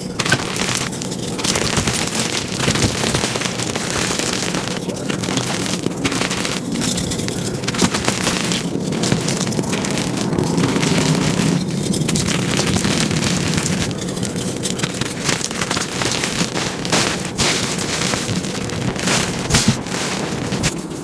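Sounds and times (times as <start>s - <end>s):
chalk crunching in hands: 0.0s - 20.9s
powder rustling between fingers: 0.0s - 21.0s.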